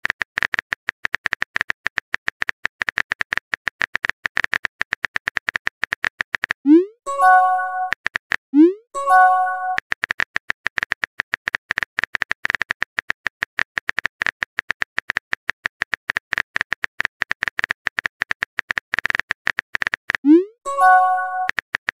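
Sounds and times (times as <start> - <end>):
rising swoop alert: 6.7 - 7.9
keyboard typing clicks: 6.7 - 8.0, 8.6 - 9.8, 19.9 - 21.6
phone chime: 7.1 - 7.9, 9.0 - 9.8, 20.7 - 21.5.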